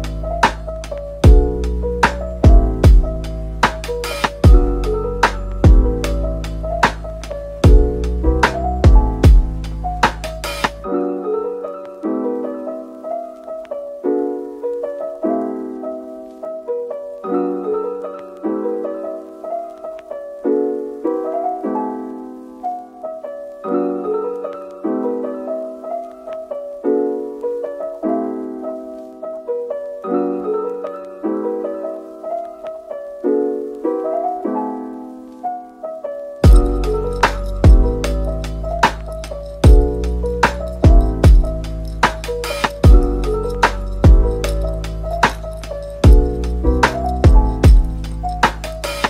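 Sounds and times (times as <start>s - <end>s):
gentle piano tune: 0.0s - 49.0s.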